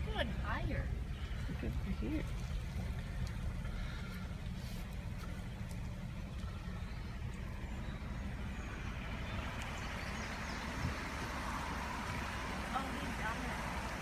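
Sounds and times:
vehicle driving rumble: 0:00.0 - 0:14.0.

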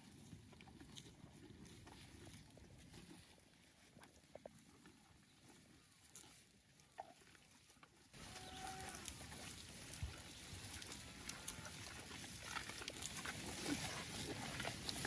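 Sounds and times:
cows crunching and chewing: 0:00.0 - 0:15.0.

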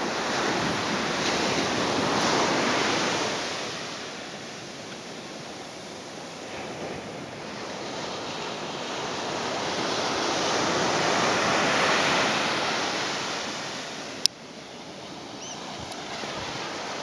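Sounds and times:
ocean surf on beach: 0:00.0 - 0:17.0.

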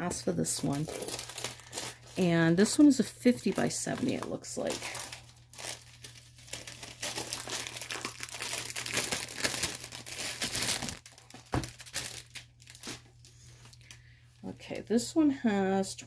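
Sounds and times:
plastic packaging crinkling: 0:00.4 - 0:14.0.

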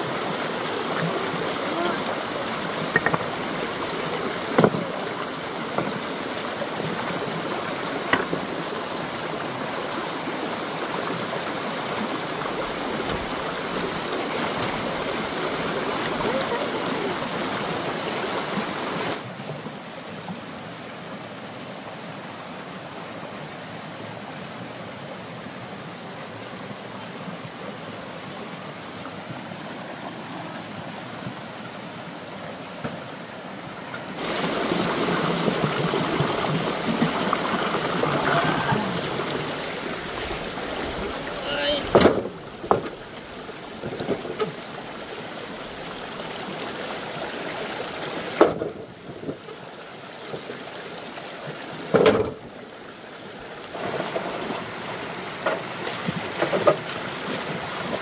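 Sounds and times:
running water rushing: 0:00.0 - 0:58.0
short knocks: 0:02.9 - 0:03.4.

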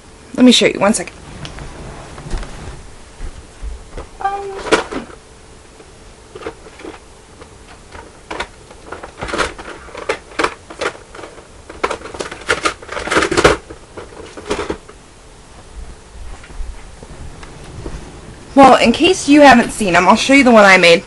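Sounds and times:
small objects clicking and rustling: 0:06.3 - 0:14.9.

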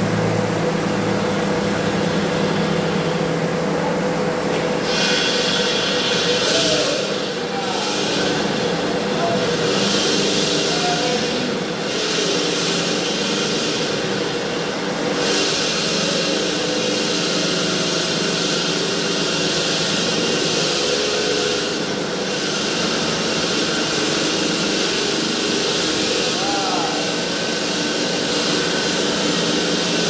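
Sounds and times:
stone-cutting saw running: 0:00.0 - 0:30.0.

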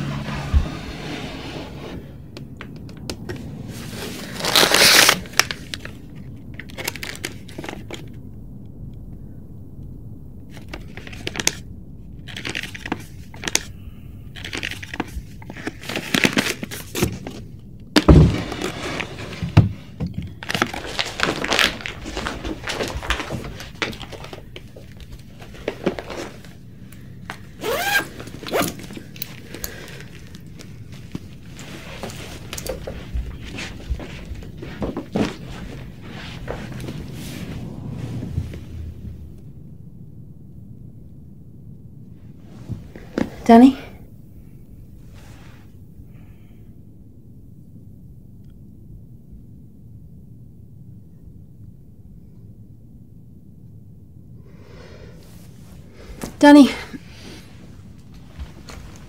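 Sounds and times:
fabric rustling and scraping: 0:00.0 - 0:02.3, 0:03.3 - 0:06.0, 0:14.4 - 0:39.5, 0:45.0 - 0:45.8, 0:55.2 - 0:59.0.

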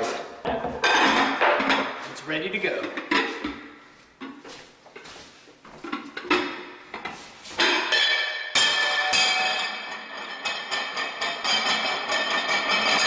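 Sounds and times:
glass baking dish clinking: 0:07.6 - 0:13.0.

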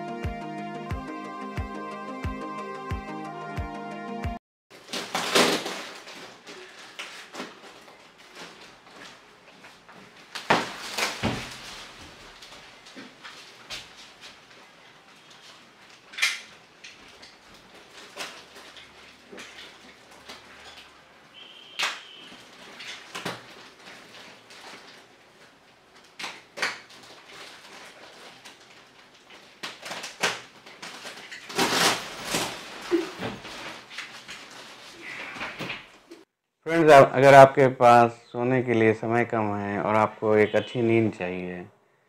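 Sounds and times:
plastic wrapping crinkling: 0:04.7 - 0:36.2.

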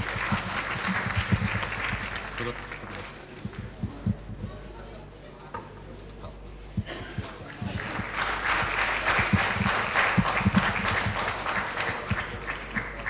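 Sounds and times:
audience applauding: 0:00.0 - 0:03.3, 0:07.5 - 0:13.0.

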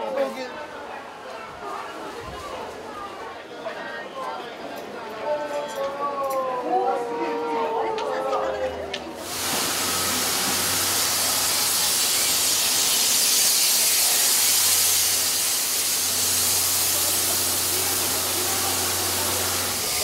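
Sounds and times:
steam hissing from locomotive: 0:09.2 - 0:20.0.

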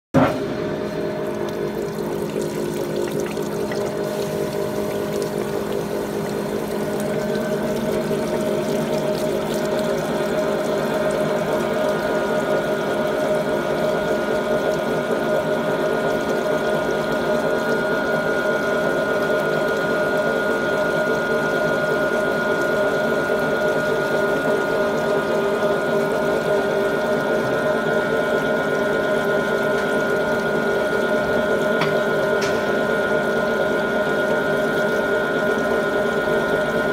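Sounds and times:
rolling mill humming: 0:00.2 - 0:12.4
coolant hissing: 0:00.5 - 0:36.9.

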